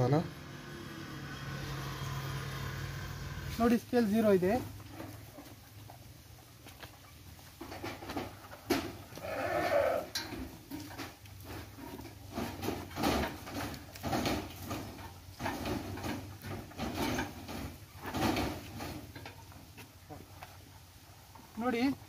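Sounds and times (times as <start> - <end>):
sheep bleating: 9.2 - 10.2.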